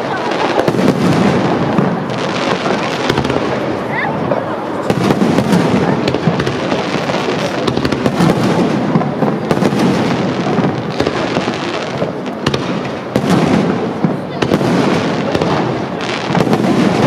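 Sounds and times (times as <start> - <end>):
fireworks bursting: 0.0 - 17.0.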